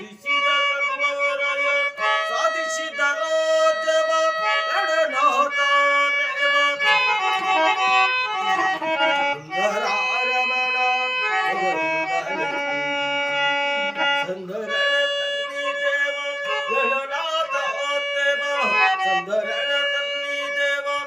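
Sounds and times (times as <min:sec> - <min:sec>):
harmonium playing devotional song: 0:00.0 - 0:21.0
man singing: 0:00.0 - 0:21.0.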